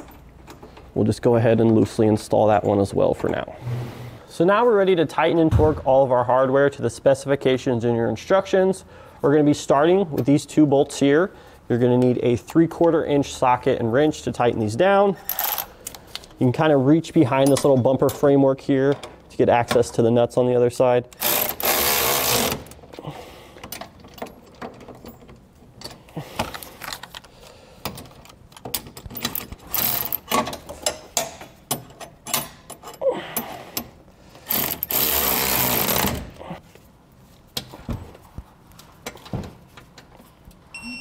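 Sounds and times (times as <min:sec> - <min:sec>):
electric ratchet whirring: 0:21.2 - 0:22.7, 0:34.4 - 0:36.2.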